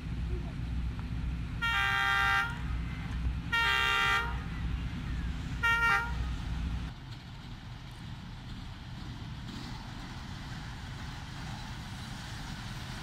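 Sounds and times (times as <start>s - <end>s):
low train rumble: 0.0s - 13.0s
locomotive air horn blasts: 1.6s - 2.7s, 3.5s - 4.5s, 5.6s - 6.4s.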